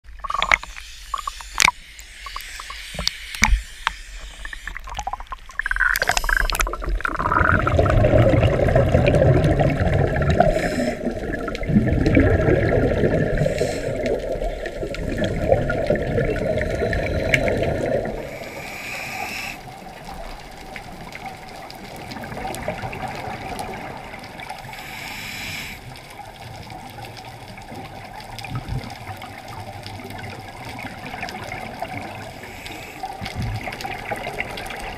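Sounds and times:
water splashing: 0:00.0 - 0:18.9
muffled underwater rushing: 0:00.0 - 0:25.0
diver exhaust bubbles: 0:04.7 - 0:18.3.

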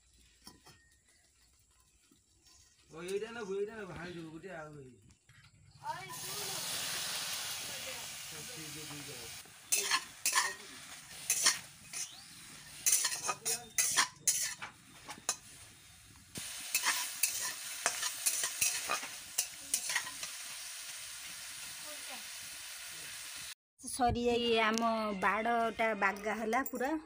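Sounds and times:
shrimp sizzling in hot oil: 0:06.0 - 0:23.6
spatula scraping a wok: 0:09.4 - 0:20.5.

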